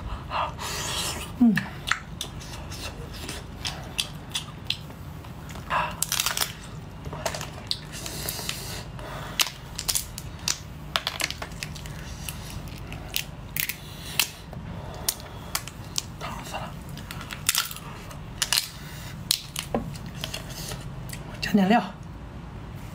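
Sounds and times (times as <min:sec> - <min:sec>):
low steady hum: 0:00.0 - 0:22.9
lobster shell cracking: 0:05.5 - 0:08.6, 0:09.3 - 0:14.4, 0:16.9 - 0:17.8, 0:18.4 - 0:20.4.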